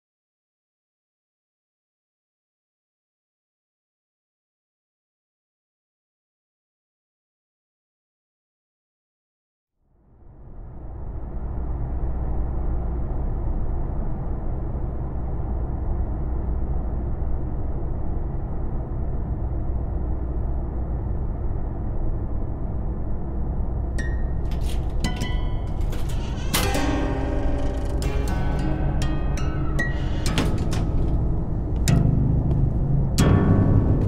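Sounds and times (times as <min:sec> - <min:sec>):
steady low rumble: 0:09.9 - 0:34.0.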